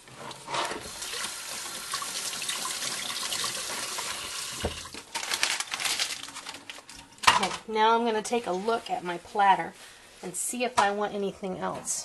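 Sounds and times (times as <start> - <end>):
water running from tap: 0.3 - 5.0.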